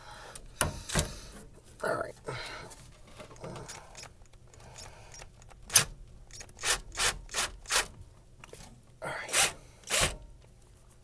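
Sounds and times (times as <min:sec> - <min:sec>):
cordless driver bursts: 0:03.7 - 0:07.9, 0:09.3 - 0:10.2.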